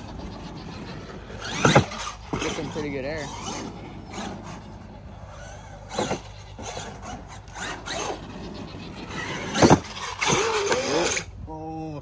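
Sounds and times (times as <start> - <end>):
rc car tyres scrabbling on dirt: 0.0 - 11.3
rc car landing knocks: 1.4 - 2.5, 5.9 - 8.0, 9.3 - 10.9.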